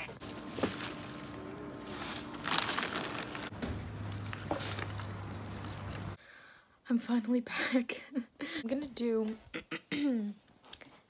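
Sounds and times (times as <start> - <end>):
plastic bags rustling: 0.0 - 6.2.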